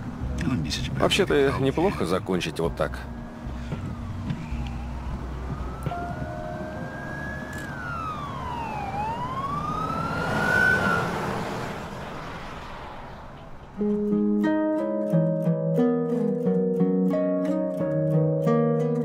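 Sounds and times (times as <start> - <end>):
steady low rumble: 0.0 - 9.9
siren wailing: 2.5 - 13.8.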